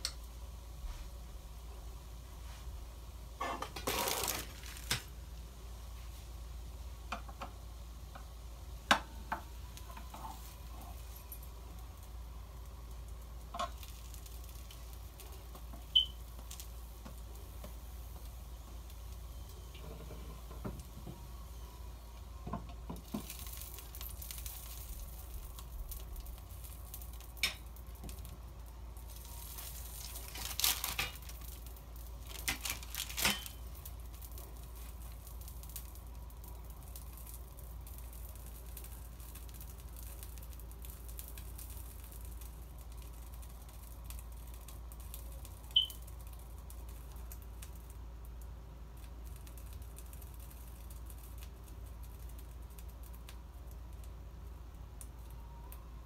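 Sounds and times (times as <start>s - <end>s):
faint sizzling: 0.0s - 56.0s
plastic rustling: 3.4s - 5.1s, 29.0s - 47.8s
knocks and clinks of utensils: 33.2s - 33.6s.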